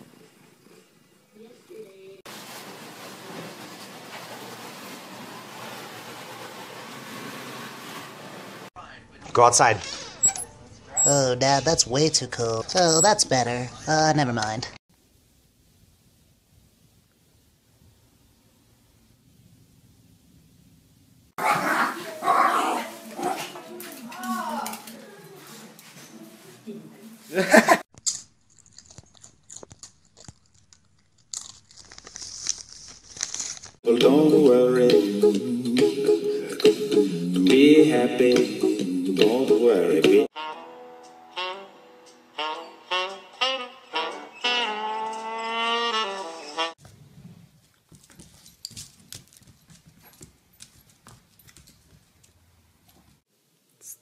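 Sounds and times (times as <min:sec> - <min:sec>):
chip bag crinkling: 0:28.0 - 0:33.8
raccoon crunching chips: 0:28.0 - 0:33.8
saxophone music: 0:33.9 - 0:46.8
puppy claws on wooden floor: 0:47.6 - 0:53.1.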